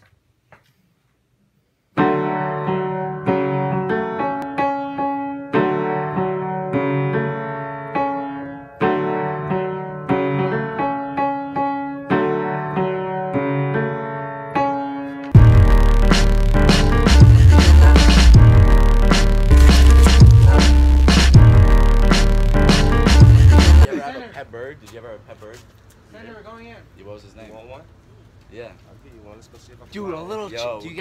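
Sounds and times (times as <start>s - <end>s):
piano chords: 2.0s - 23.9s
loud music with heavy bass beat: 15.4s - 23.9s.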